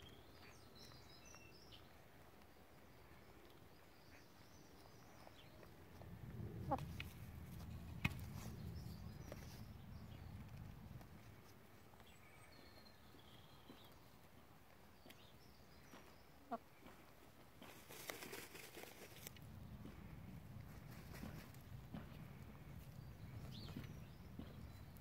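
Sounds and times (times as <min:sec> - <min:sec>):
chickens scratching in sand: 0:04.7 - 0:12.0, 0:15.9 - 0:25.0.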